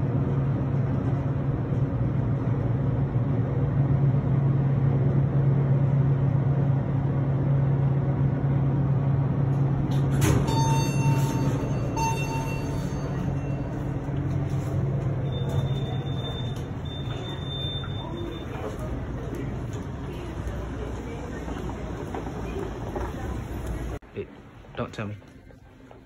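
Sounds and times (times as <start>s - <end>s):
escalator humming: 7.7s - 24.4s
short electronic beeps: 10.4s - 14.0s, 15.2s - 18.7s.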